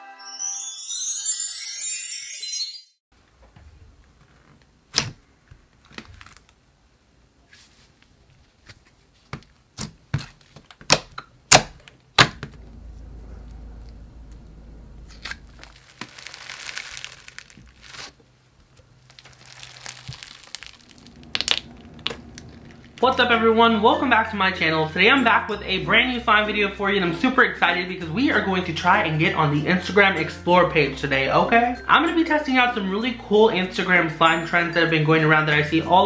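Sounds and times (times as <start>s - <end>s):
slime crinkling and crackling: 5.7s - 6.6s, 15.1s - 23.0s.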